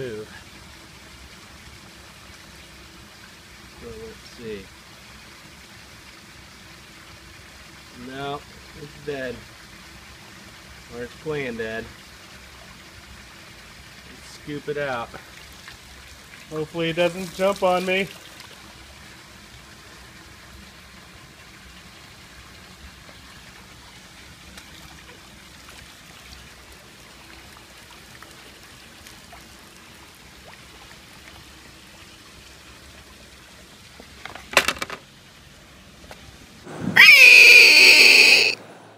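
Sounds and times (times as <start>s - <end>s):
water trickling and splashing: 0.0s - 37.9s
loud shriek falling in pitch: 36.9s - 38.6s.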